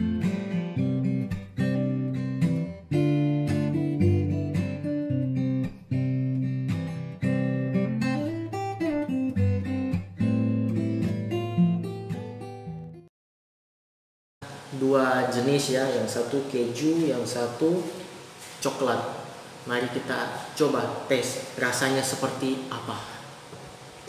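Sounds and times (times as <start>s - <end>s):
guitar strumming chords: 0.0s - 13.1s.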